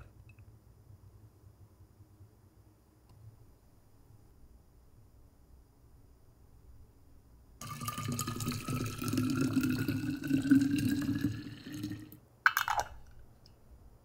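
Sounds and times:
tea pouring into glass bottle: 7.6 - 12.8.

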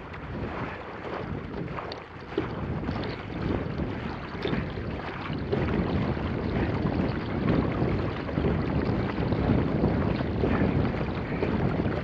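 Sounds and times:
water rushing along kayak hull: 0.0 - 12.0
wind buffeting microphone: 0.0 - 12.0.

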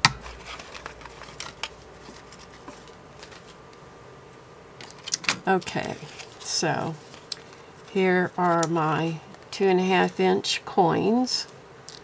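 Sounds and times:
paper scraps rustling: 0.2 - 3.6, 4.8 - 9.5.

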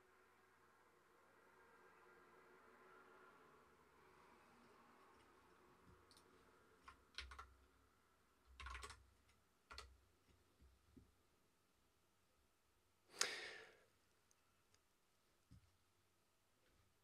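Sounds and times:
computer keyboard clicks: 6.1 - 7.6, 8.5 - 10.0.

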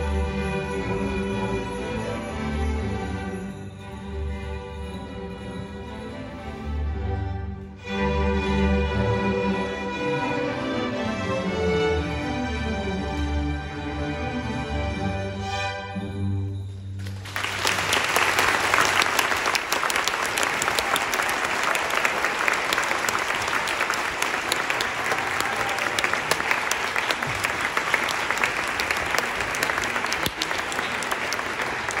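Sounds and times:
audience applause: 17.0 - 32.0.

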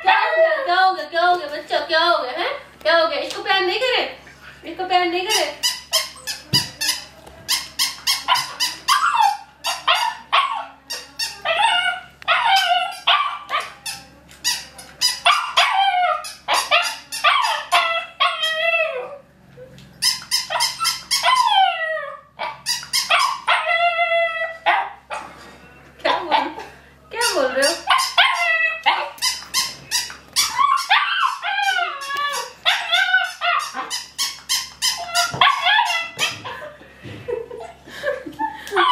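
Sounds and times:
puppy barking and yipping: 5.3 - 7.0, 7.6 - 13.9, 15.0 - 19.1, 20.0 - 25.3, 27.2 - 36.5
puppy howling calls: 8.1 - 13.8, 15.2 - 19.3, 20.5 - 25.3, 27.6 - 29.7, 30.4 - 36.6.

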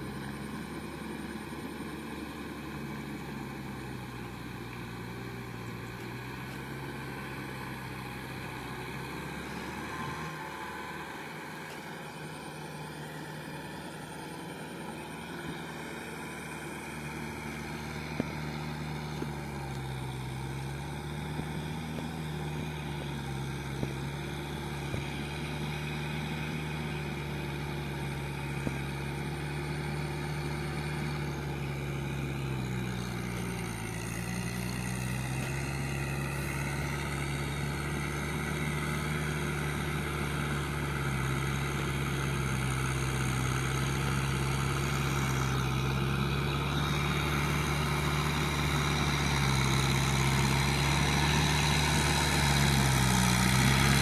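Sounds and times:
tractor diesel engine droning: 0.0 - 54.0.

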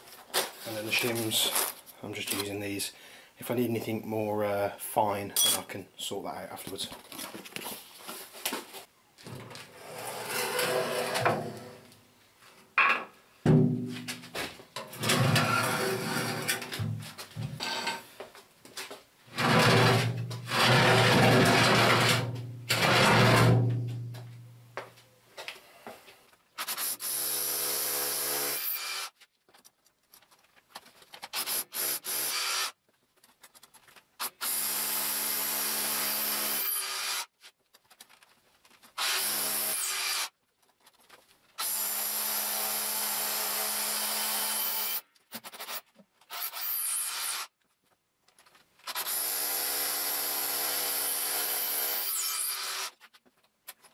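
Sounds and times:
hammer drill into concrete: 19.4 - 23.6, 34.2 - 37.3, 39.0 - 40.3, 41.6 - 45.0, 45.6 - 47.5, 48.9 - 53.0.

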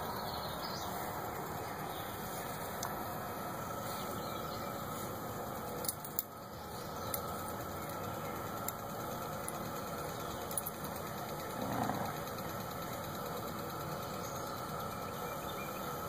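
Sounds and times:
cicada chorus drone: 0.0 - 16.0.

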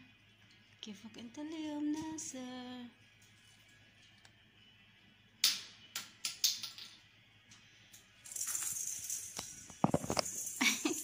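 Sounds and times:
toy ball rattling on wire floor: 7.9 - 11.0.

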